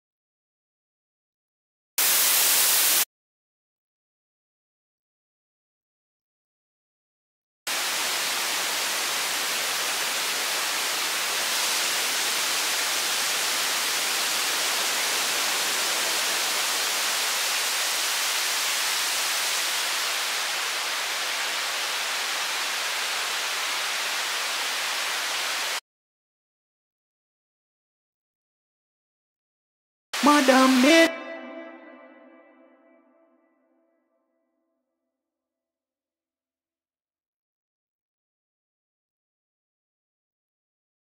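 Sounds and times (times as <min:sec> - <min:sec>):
white noise hiss: 0:02.0 - 0:03.0, 0:07.7 - 0:25.8.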